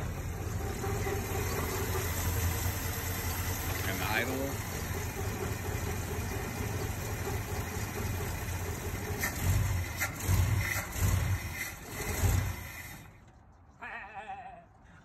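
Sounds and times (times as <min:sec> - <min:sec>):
truck engine idling and surging: 0:00.0 - 0:13.8.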